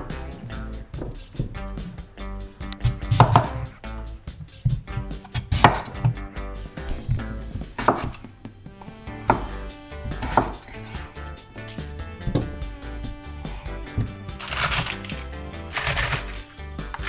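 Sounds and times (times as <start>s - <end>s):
knife chopping on wooden board: 2.8s - 3.6s, 5.1s - 6.2s, 7.8s - 8.2s, 9.3s - 10.6s.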